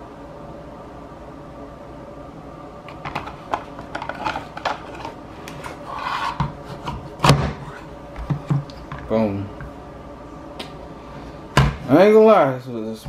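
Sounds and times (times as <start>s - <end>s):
scraping rub: 3.6s - 7.9s.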